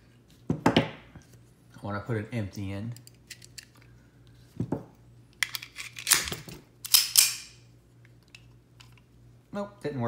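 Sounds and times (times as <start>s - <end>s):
pistol metallic clicks: 5.4s - 7.6s.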